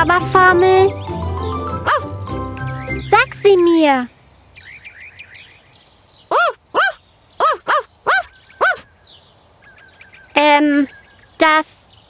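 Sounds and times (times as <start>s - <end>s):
cartoon dog yapping: 1.8s - 2.1s, 6.3s - 8.9s
faint bird chirps: 4.2s - 12.0s.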